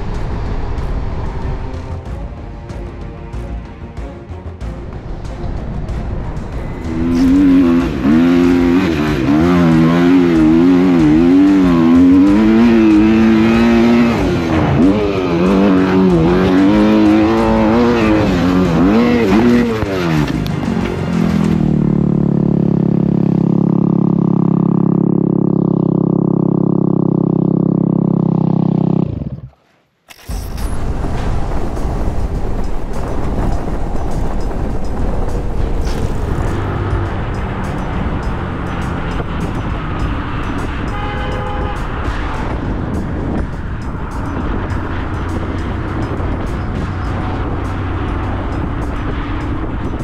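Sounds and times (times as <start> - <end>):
dirt bike engine revving: 6.7 - 29.5.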